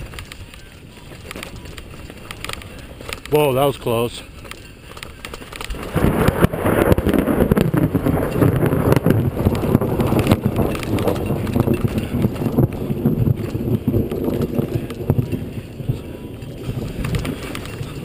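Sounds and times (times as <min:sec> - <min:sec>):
bike rattling over rocks: 0:00.0 - 0:18.0
tyres crunching on gravel: 0:00.0 - 0:18.0
wind buffeting microphone: 0:00.0 - 0:18.0.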